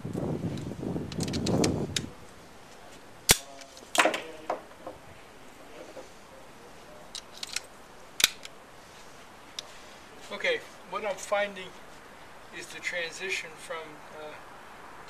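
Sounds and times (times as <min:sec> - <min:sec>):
pistol metallic clicks: 0:03.3 - 0:04.1, 0:07.2 - 0:08.6.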